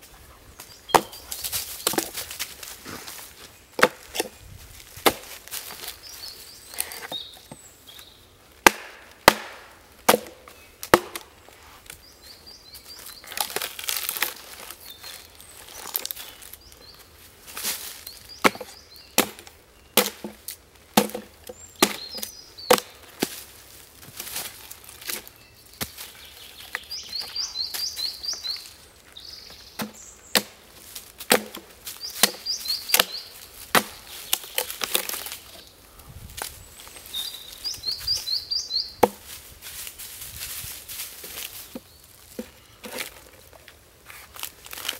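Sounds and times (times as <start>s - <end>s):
axe chopping wood: 0.9s - 1.2s, 3.8s - 4.3s, 5.0s - 5.6s, 8.6s - 11.3s, 18.4s - 23.4s, 29.8s - 30.6s, 31.2s - 35.3s, 39.0s - 39.4s.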